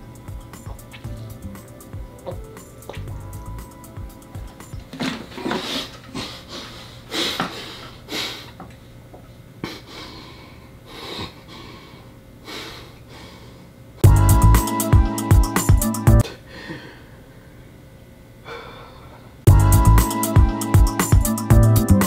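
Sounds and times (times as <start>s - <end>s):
man gasping for breath: 16.2s - 17.4s, 18.4s - 19.3s.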